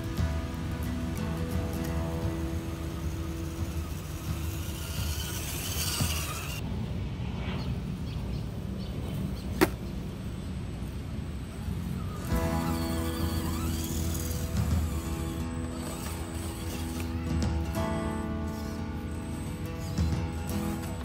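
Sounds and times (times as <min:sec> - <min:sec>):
electric motor and gears whining: 0:00.0 - 0:06.6, 0:10.8 - 0:21.0.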